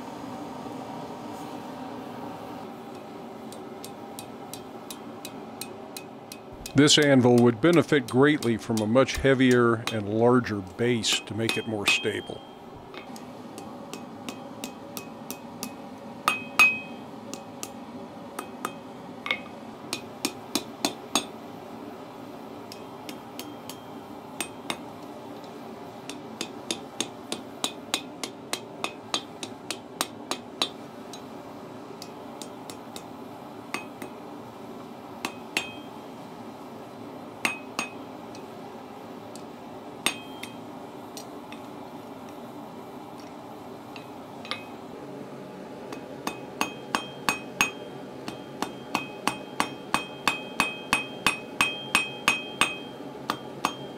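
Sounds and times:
steady background hum: 0.0 - 53.9
hammer striking hot steel on anvil: 2.9 - 21.4, 22.7 - 31.3, 32.0 - 33.1, 33.7 - 34.2, 35.2 - 36.0, 37.4 - 38.5, 40.0 - 40.6, 43.9 - 44.8, 45.9 - 53.9.

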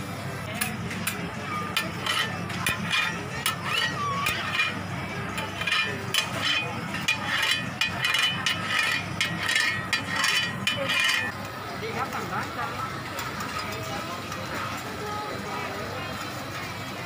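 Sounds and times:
market crowd chatter: 0.0 - 17.0
metal blade scraping on griddle: 0.6 - 11.4.

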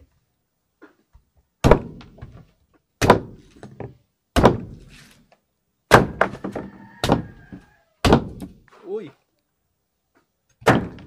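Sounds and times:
machete chopping coconut: 1.6 - 2.2, 3.0 - 3.6, 4.3 - 4.9, 5.9 - 7.4, 8.0 - 8.6, 10.6 - 11.0.

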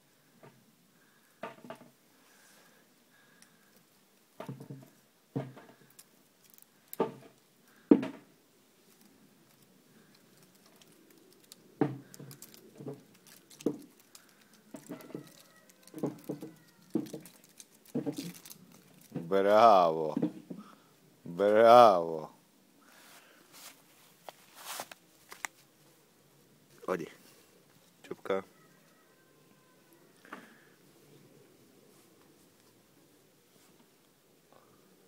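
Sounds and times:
claws scratching on bark: 8.8 - 19.2.

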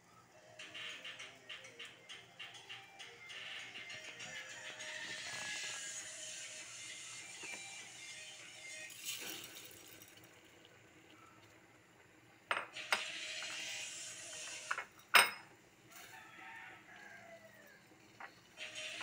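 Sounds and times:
kitchenware clinking on metal pot: 14.7 - 15.6.

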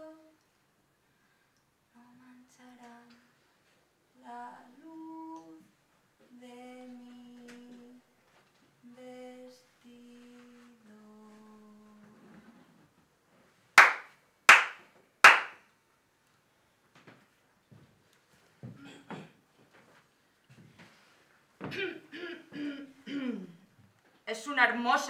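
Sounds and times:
person singing slow tune: 0.0 - 0.5, 1.9 - 3.3, 4.2 - 8.1, 8.8 - 12.8
hand claps: 13.8 - 15.6.

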